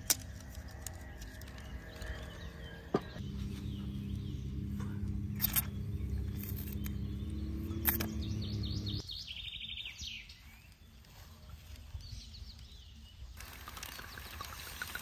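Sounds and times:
birds chirping and trilling: 0:00.0 - 0:15.0
steady low hum: 0:01.7 - 0:09.0.

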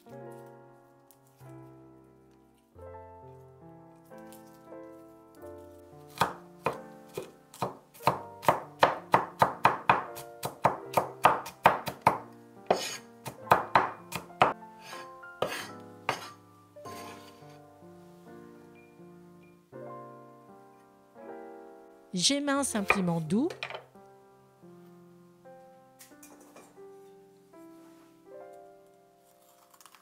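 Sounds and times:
soft background music: 0:00.0 - 0:30.0
cleaver chopping on wooden board: 0:06.1 - 0:14.6, 0:15.4 - 0:16.3.

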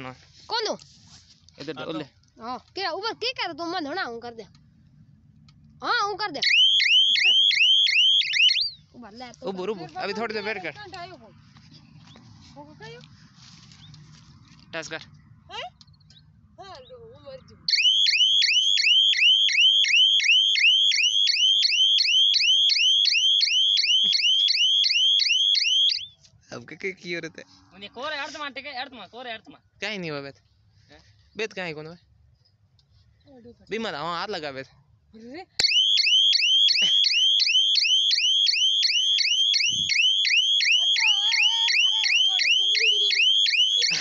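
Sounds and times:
electronic siren chirping: 0:06.4 - 0:08.9, 0:17.7 - 0:26.2, 0:35.6 - 0:44.0.

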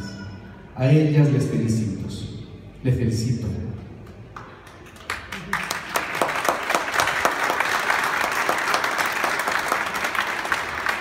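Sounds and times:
audience applause: 0:04.7 - 0:11.0.

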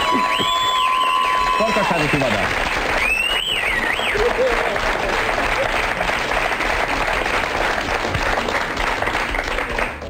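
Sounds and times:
studio audience applauding: 0:00.0 - 0:10.0.

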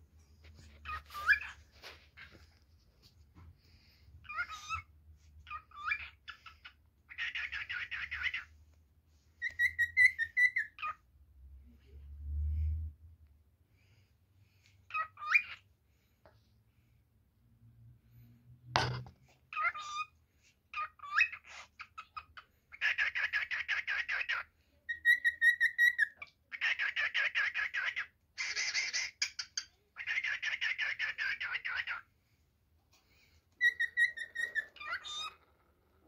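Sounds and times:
cockatiel whistling and warbling: 0:00.8 - 0:01.6, 0:04.2 - 0:08.5, 0:09.4 - 0:11.0, 0:14.9 - 0:15.6, 0:19.5 - 0:20.1, 0:20.7 - 0:32.0, 0:33.6 - 0:35.4.

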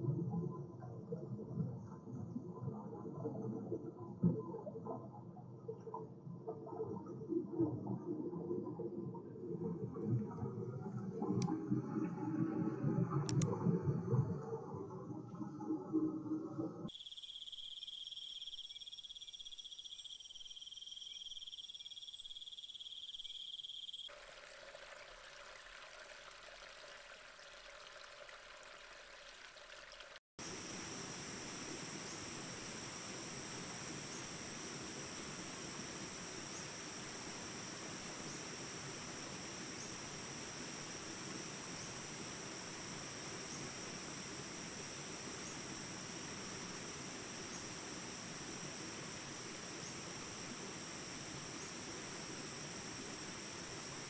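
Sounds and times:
insect chorus trilling: 0:16.9 - 0:24.7, 0:30.4 - 0:54.0.

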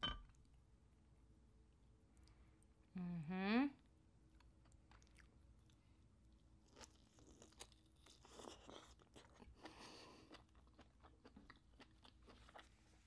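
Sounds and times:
person chewing: 0:04.4 - 0:13.0.

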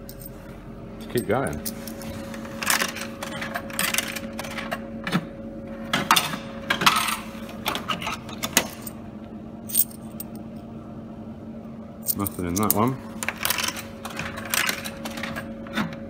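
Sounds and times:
steady hum: 0:00.0 - 0:16.0
coins clattering through vending machine: 0:01.1 - 0:04.8, 0:05.9 - 0:09.0, 0:09.7 - 0:10.4, 0:12.0 - 0:16.0.

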